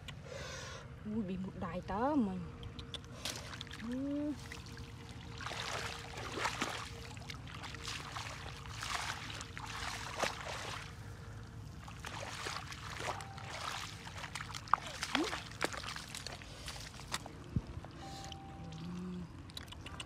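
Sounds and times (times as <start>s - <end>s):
feet splashing in muddy water: 3.0s - 19.0s.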